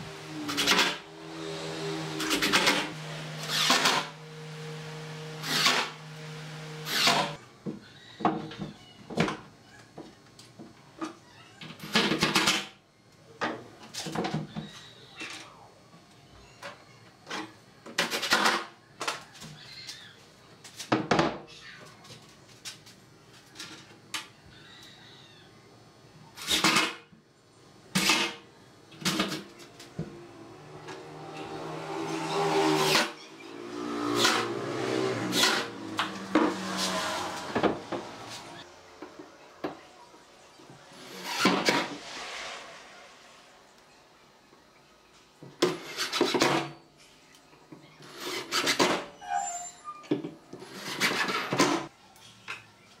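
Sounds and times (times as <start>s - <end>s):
cordless drill driving screws: 2.0s - 7.4s.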